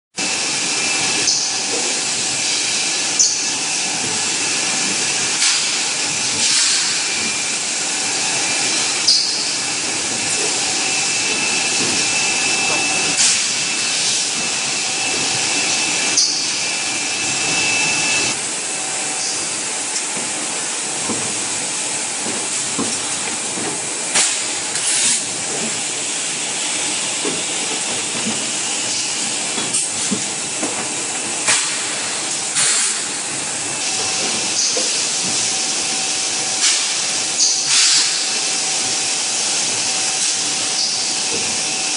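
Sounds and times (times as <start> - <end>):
compressed air hissing: 0.3 - 22.0, 24.0 - 41.9
sharp pneumatic blasts: 5.3 - 7.6, 10.4 - 14.4, 31.4 - 33.2, 36.6 - 38.4.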